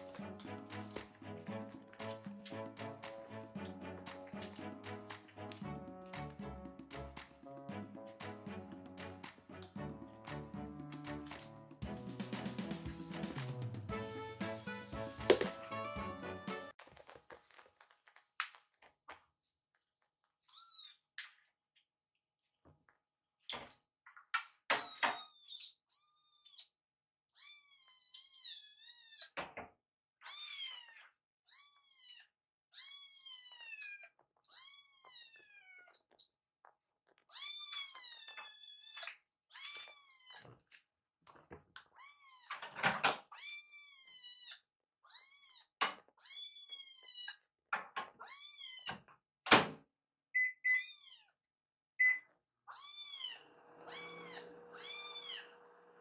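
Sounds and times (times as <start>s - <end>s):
kittens meowing: 52.7s - 55.5s.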